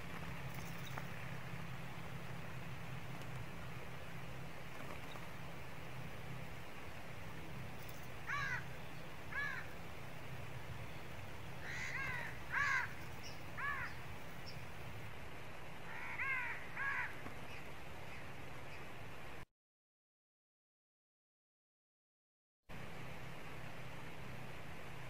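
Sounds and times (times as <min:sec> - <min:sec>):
low background hum: 0:00.0 - 0:19.4
crow cawing: 0:08.2 - 0:08.7, 0:09.3 - 0:09.8, 0:11.6 - 0:13.0, 0:13.6 - 0:14.0, 0:15.9 - 0:17.2.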